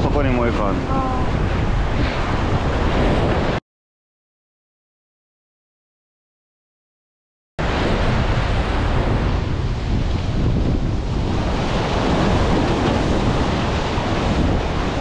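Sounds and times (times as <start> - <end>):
wind buffeting microphone: 0.0 - 3.6, 7.6 - 15.0
sea waves washing on concrete: 7.6 - 15.0.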